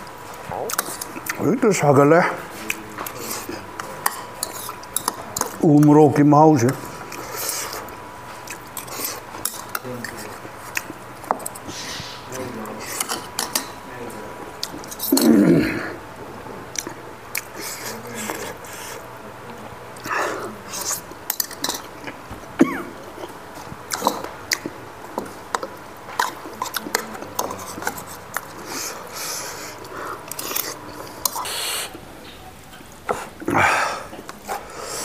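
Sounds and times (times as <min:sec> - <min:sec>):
chewing and lip smacks: 0:00.4 - 0:01.4, 0:06.7 - 0:11.7, 0:14.6 - 0:15.2, 0:16.7 - 0:19.0, 0:23.1 - 0:28.9, 0:29.5 - 0:32.4
spoon clicking against bowls: 0:04.0 - 0:05.9
person clearing throat: 0:15.1 - 0:16.0, 0:22.6 - 0:23.0.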